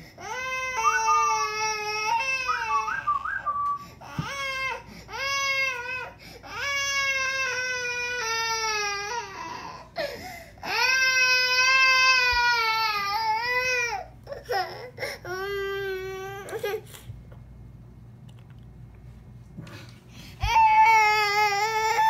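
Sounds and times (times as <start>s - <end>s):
toddler crying wails: 0.2s - 3.1s, 4.0s - 16.8s, 20.4s - 22.0s.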